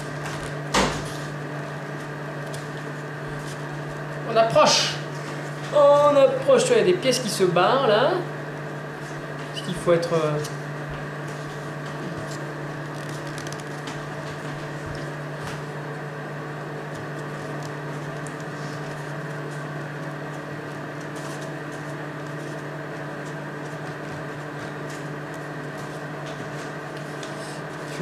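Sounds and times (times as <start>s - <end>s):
steady hum: 0.0s - 28.0s
paper crinkling and clicking: 12.3s - 14.0s.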